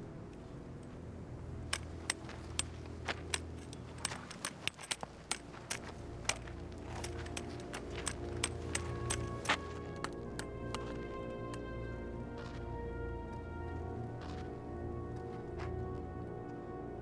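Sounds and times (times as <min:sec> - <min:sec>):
low steady drone: 0:00.0 - 0:17.0
cane tapping on stony ground: 0:01.6 - 0:11.8.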